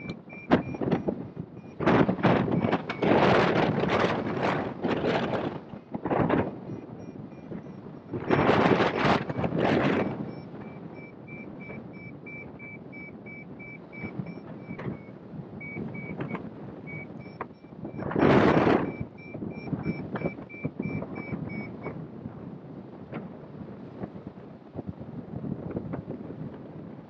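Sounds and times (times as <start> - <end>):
variometer beeping high-pitched: 0.0 - 4.0, 6.6 - 21.9
wind rush on microphone: 0.0 - 27.0.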